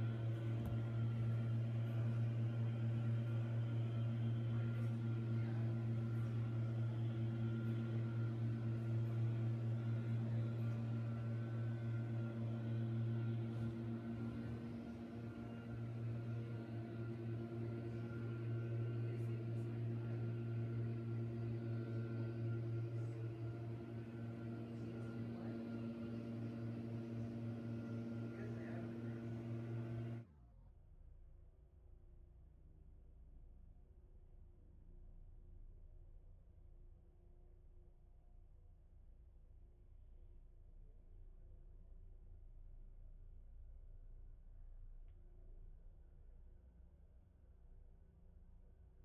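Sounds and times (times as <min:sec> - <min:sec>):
leaf blower engine running: 0:00.0 - 0:30.2.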